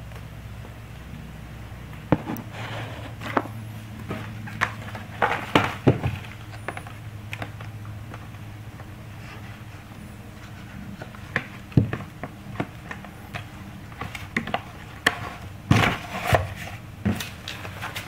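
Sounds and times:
steady low hum: 0:00.0 - 0:18.0
plastic cases tapping and scraping: 0:03.1 - 0:08.3, 0:10.4 - 0:18.0.

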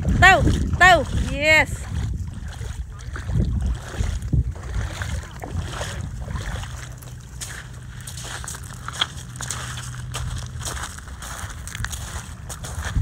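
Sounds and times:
wind buffeting microphone: 0:00.0 - 0:08.5, 0:09.5 - 0:13.0
low hum: 0:01.7 - 0:13.0
footsteps on gravel: 0:03.7 - 0:13.0.

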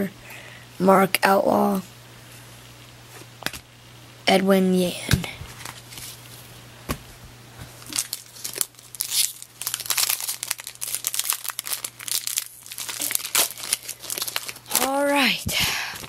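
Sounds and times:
foil wrapper crinkling and tearing: 0:07.8 - 0:16.0.

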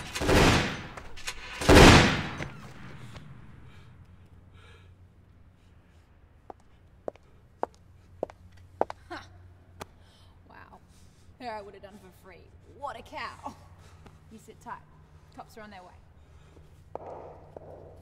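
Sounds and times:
pistol shots: 0:00.0 - 0:03.6, 0:17.0 - 0:18.0.

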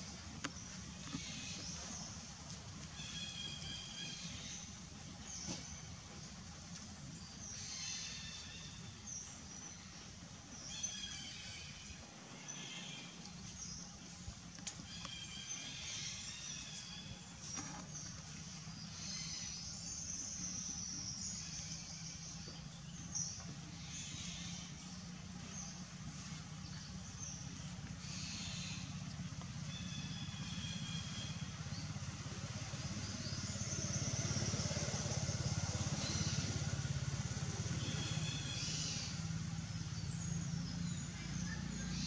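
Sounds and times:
low steady hum: 0:00.0 - 0:42.0
small engine running: 0:23.4 - 0:42.0.

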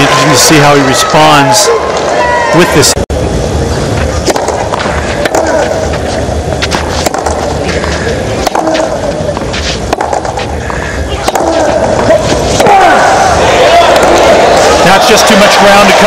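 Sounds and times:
crowd murmur: 0:00.1 - 0:16.0
racket hitting ball: 0:04.2 - 0:06.0, 0:06.6 - 0:10.6, 0:11.2 - 0:13.0, 0:13.8 - 0:14.4.

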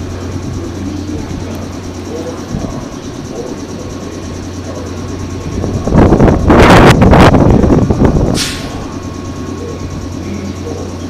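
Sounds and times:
electric train humming: 0:00.0 - 0:11.0
loud rushing noise: 0:05.5 - 0:09.1
short sharp hiss: 0:08.3 - 0:08.8.

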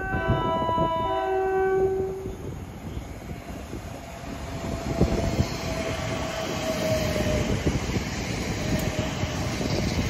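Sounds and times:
train high whine: 0:00.0 - 0:10.0
train rumble: 0:00.0 - 0:10.0.

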